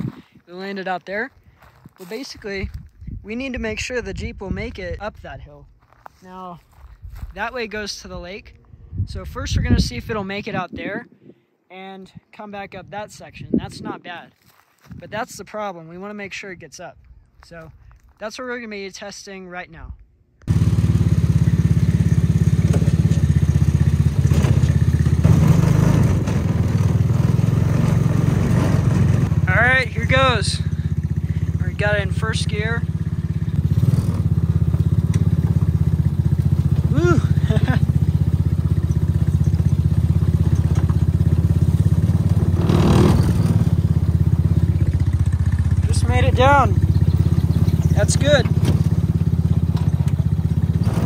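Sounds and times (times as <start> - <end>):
small engine puttering: 20.5 - 29.5, 30.4 - 51.0.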